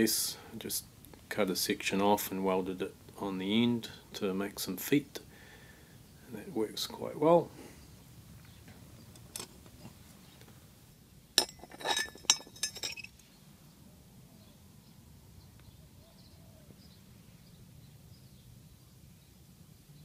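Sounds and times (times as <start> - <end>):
metal crucible clinking on brick: 11.4 - 13.2.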